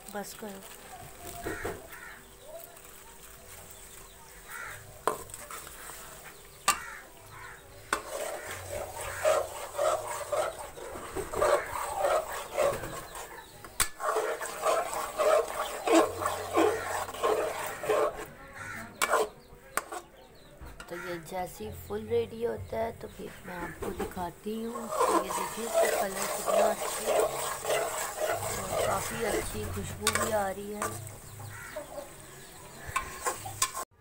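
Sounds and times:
metal spoon scraping a pot: 0:04.6 - 0:20.2, 0:23.4 - 0:34.0.

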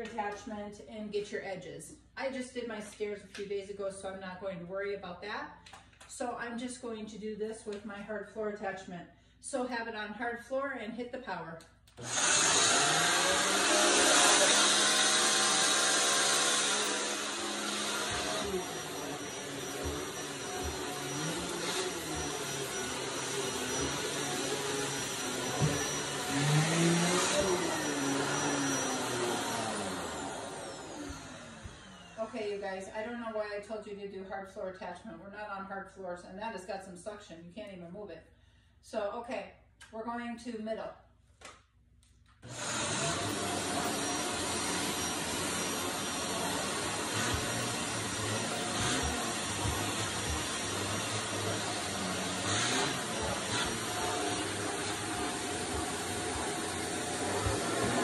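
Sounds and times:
vacuum cleaner motor whine: 0:12.0 - 0:32.6, 0:42.4 - 0:58.0.

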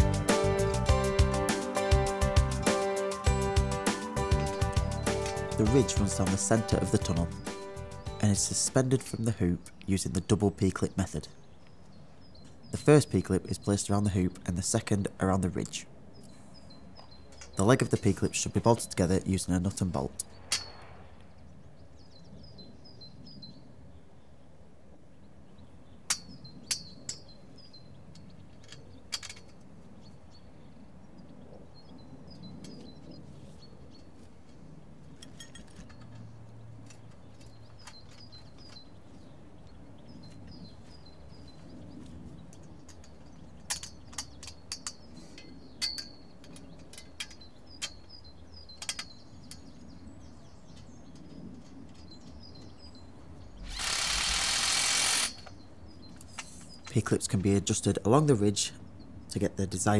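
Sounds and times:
small birds chirping: 0:00.0 - 0:59.9
metal clips clicking on steel: 0:05.1 - 0:05.6, 0:42.5 - 0:49.7
loud rasping noise: 0:53.6 - 0:55.5.

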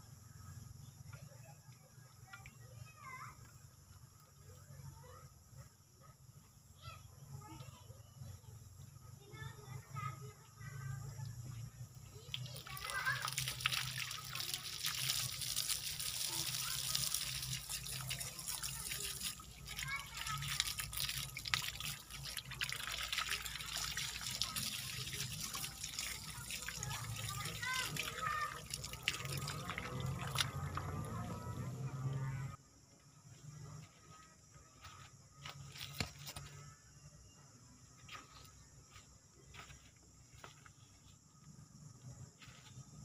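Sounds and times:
hose water spraying and splashing: 0:12.2 - 0:32.5.

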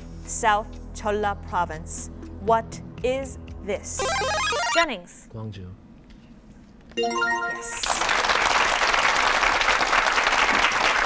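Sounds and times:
electronic correct-answer jingle: 0:04.0 - 0:04.8, 0:07.0 - 0:07.9
studio audience applause: 0:07.7 - 0:11.0.

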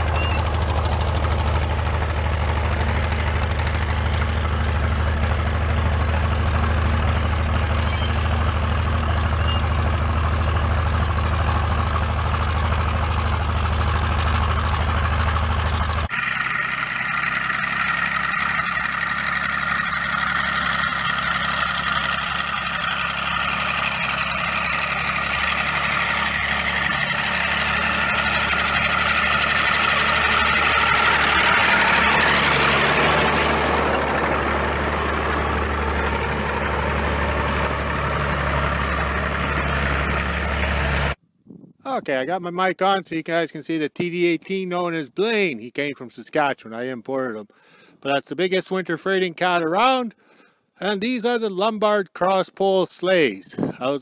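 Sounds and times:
crawler tractor diesel engine: 0:00.0 - 0:41.2, 0:41.9 - 0:54.0.

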